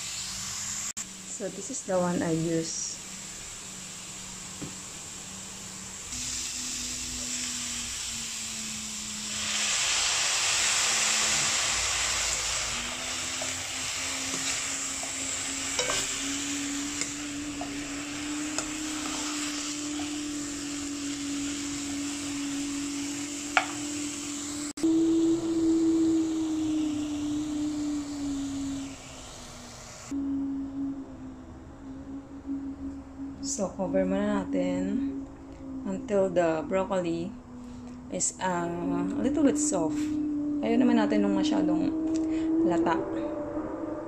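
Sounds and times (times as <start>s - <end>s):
vegetables sizzling in a pan: 0.0s - 30.1s
low steady hum: 1.0s - 44.0s.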